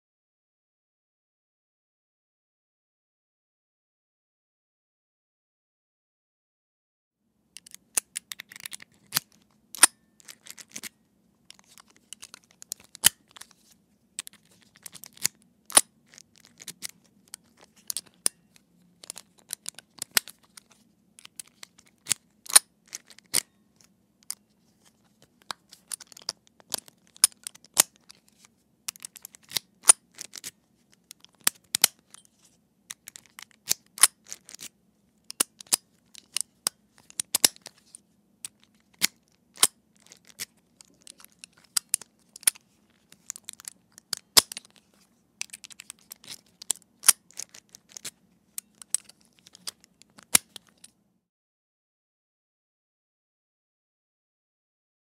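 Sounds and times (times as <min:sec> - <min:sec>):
padlock locked with a key: 0:07.6 - 0:10.9, 0:31.1 - 0:32.3, 0:35.3 - 0:37.8, 0:38.5 - 0:42.6, 0:43.2 - 0:44.8, 0:45.4 - 0:50.9.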